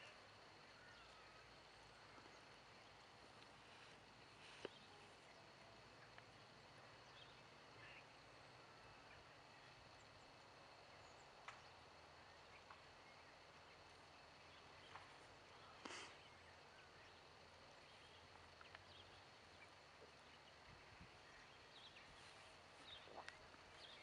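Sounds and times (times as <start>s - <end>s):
soft rustle: 3.3s - 5.2s, 22.0s - 24.0s
faint clicks: 18.6s - 19.0s.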